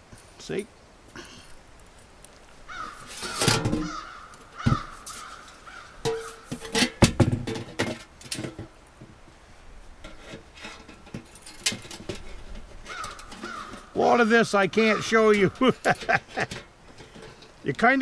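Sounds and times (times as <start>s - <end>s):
crows cawing: 2.7s - 6.5s, 12.8s - 14.0s, 14.8s - 15.3s
sheet metal stovepipe clanking: 3.1s - 8.7s, 10.0s - 14.0s, 14.9s - 17.6s.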